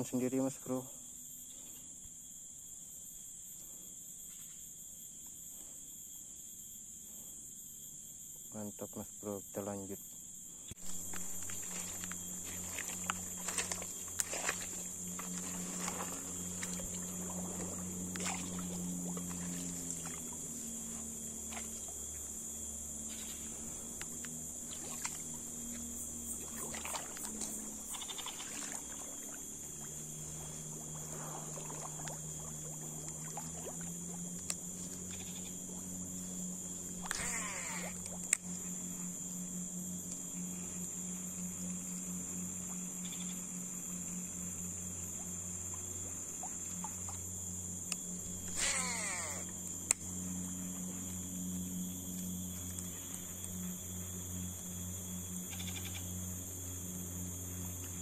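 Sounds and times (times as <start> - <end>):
high-pitched insect buzz: 0.0 - 58.0
low droning hum: 10.2 - 37.2, 37.9 - 58.0
rustling through vegetation: 10.8 - 22.4.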